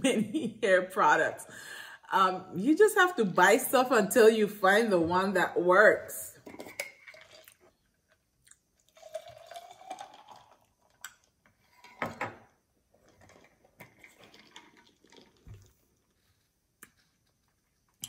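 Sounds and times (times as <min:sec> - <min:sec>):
slurping through a straw: 0:08.8 - 0:11.0, 0:13.0 - 0:16.2.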